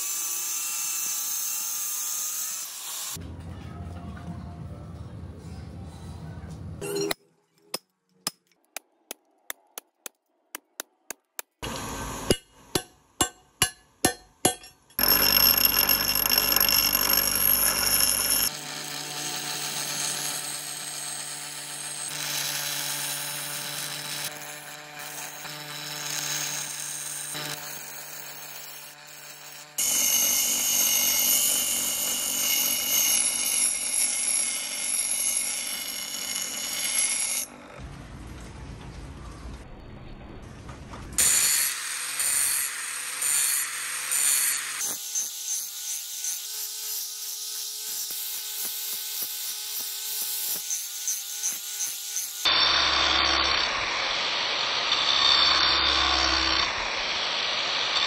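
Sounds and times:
bench grinder grinding steel: 11.6 - 37.8, 41.2 - 58.0
strikes on steel: 12.2 - 15.0.

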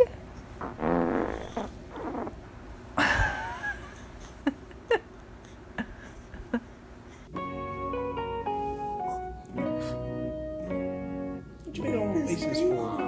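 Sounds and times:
baby grunting and squeaking: 0.7 - 2.4.

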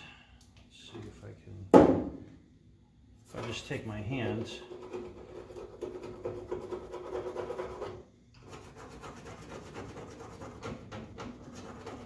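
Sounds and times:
hand scraping painted metal: 4.2 - 12.0.

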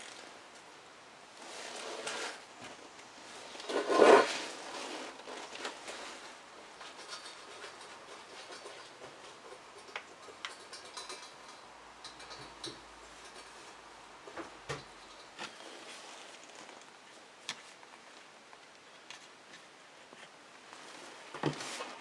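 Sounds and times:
wooden stick scraping metal plate: 3.6 - 5.2.

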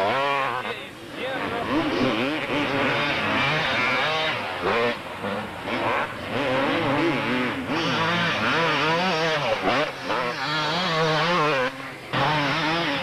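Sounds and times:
motocross bike engines revving: 0.0 - 13.0.

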